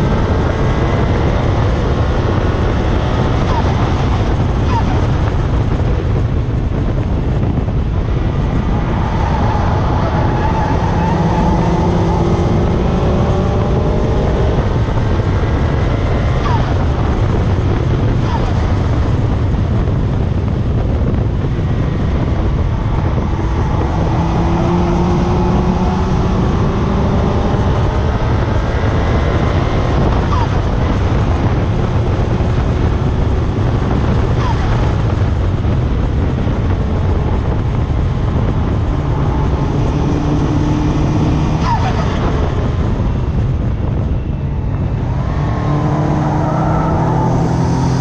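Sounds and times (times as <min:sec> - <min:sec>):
faint car engine: 0:00.0 - 0:48.0
wind and road noise: 0:00.0 - 0:48.0
tyre roar: 0:15.7 - 0:18.9, 0:45.0 - 0:48.0.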